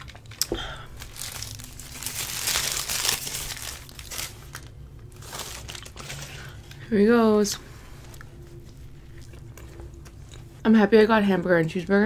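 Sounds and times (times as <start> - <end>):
paper wrapper crinkling: 0.0 - 6.8.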